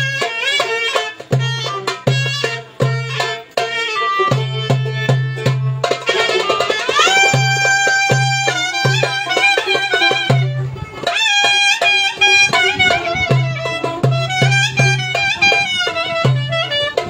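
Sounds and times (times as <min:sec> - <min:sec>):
clarinet playing folk melody: 0:00.0 - 0:17.0
drum beat: 0:00.0 - 0:17.0.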